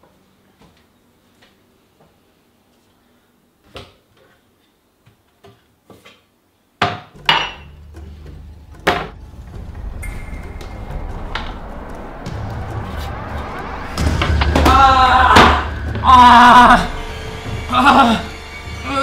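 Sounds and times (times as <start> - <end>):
low rumble: 7.6 - 18.6.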